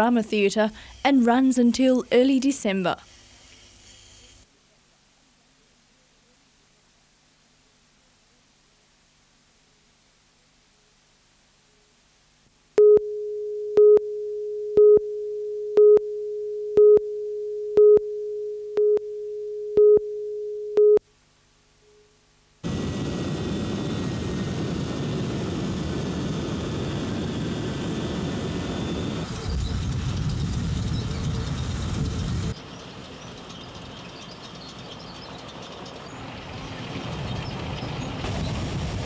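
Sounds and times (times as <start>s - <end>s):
steady line-up tone: 12.8s - 21.1s.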